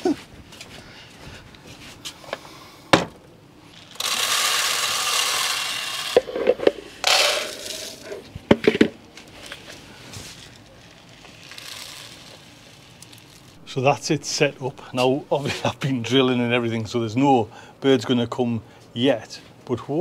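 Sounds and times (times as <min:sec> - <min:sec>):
bird seed pouring into plastic tube: 0:10.4 - 0:13.5.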